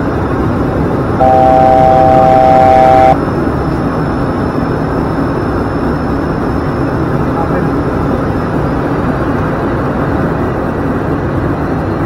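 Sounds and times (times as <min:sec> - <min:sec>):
turboprop engine noise: 0:00.0 - 0:12.0
electronic alert tone: 0:01.2 - 0:03.2.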